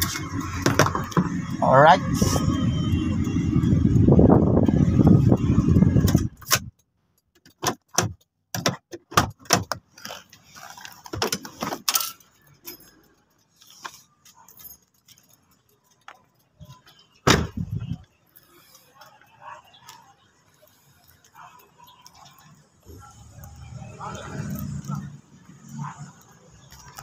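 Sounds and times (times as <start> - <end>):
clicks knocks and light jingling: 11.2 - 17.2
loud thump: 17.3 - 17.6.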